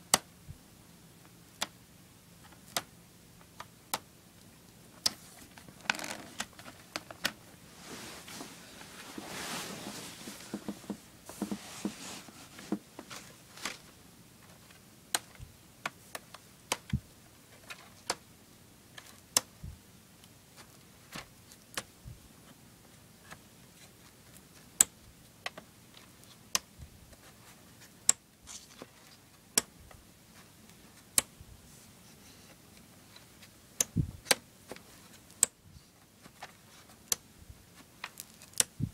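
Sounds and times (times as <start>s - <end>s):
plastic cases sliding and rustling: 5.1s - 14.7s
plastic cases clacking together: 5.5s - 7.4s.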